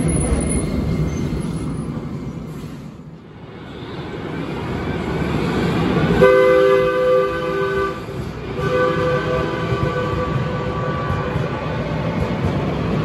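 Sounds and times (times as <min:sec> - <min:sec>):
light rail train running: 0:00.0 - 0:13.0
train horn blasts: 0:06.2 - 0:11.5.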